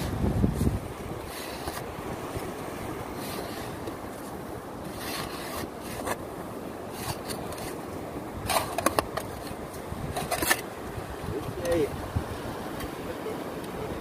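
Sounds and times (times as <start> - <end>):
surf: 0.0 - 14.0
wind: 0.0 - 14.0
shovel scraping wet sand: 0.6 - 2.0, 3.1 - 4.0, 4.8 - 6.2, 6.9 - 7.8, 8.4 - 10.7.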